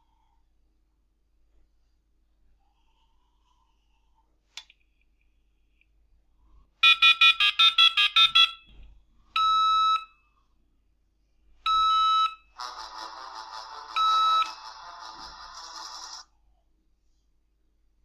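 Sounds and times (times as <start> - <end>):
mobile phone ringtone: 6.8 - 8.7, 11.8 - 16.2
modem dialing beeps: 13.9 - 15.3.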